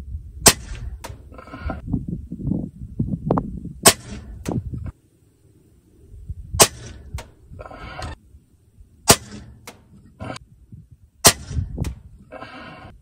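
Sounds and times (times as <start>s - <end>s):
air rifle shot cracks: 6.6s - 7.4s, 9.0s - 9.9s, 11.2s - 12.0s.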